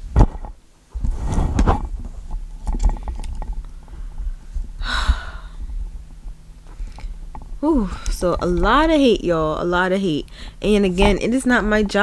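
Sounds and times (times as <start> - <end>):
rubbing and rustling: 0.0 - 4.8
low rumble: 1.3 - 12.0.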